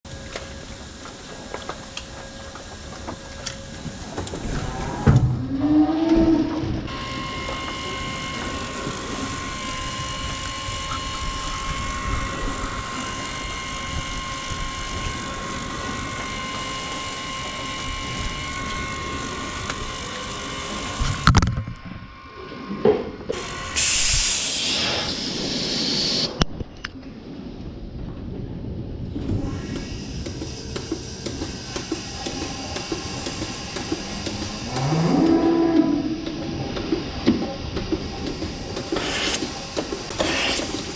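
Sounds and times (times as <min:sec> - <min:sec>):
high whine of robotic arm: 0:00.1 - 0:26.5, 0:29.0 - 0:40.9
robotic milker mechanical hum: 0:00.1 - 0:27.3, 0:28.1 - 0:40.9
loud hiss: 0:23.4 - 0:26.4, 0:38.6 - 0:40.9.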